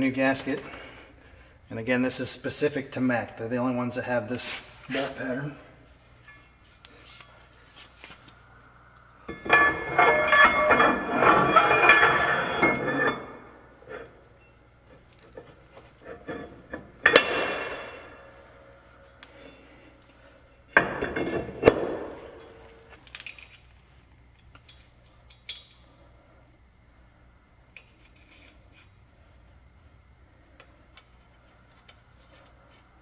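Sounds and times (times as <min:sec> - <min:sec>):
metal clanging: 0:06.2 - 0:06.7, 0:09.2 - 0:14.2, 0:15.3 - 0:18.4
metal scraping and ringing: 0:06.2 - 0:06.7, 0:09.2 - 0:14.6.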